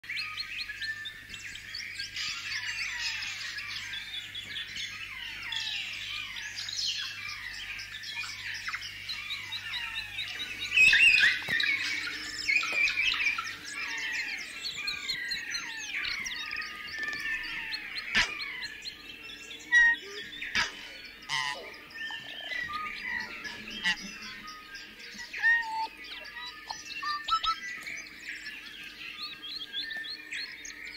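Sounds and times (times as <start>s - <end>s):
birds chirping and calling: 0.0s - 30.9s.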